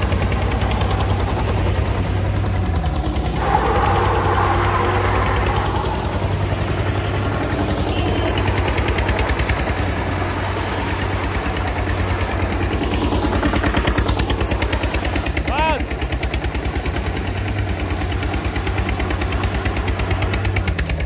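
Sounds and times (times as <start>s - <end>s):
tractor diesel engine under load: 0.0s - 21.0s.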